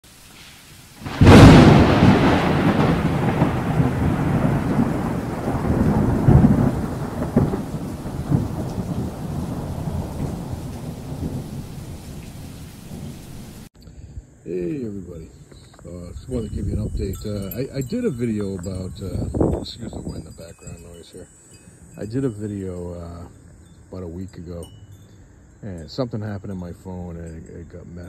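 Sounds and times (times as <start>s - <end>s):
rain: 0.0s - 13.7s
thunder clap and rumbles: 1.0s - 13.7s.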